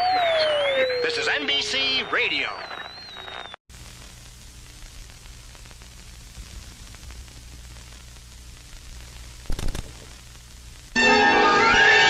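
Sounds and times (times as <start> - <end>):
faint crackles: 2.4 - 11.0
static hiss: 2.8 - 11.0.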